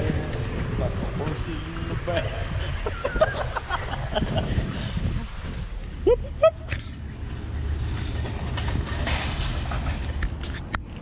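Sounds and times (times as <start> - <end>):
car driving slowly: 0.0 - 11.0.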